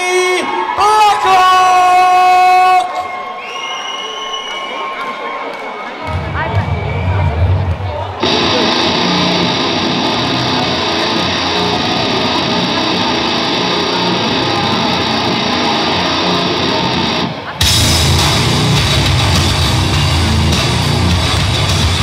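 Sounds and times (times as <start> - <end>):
loud rock music over pa: 8.2 - 22.0.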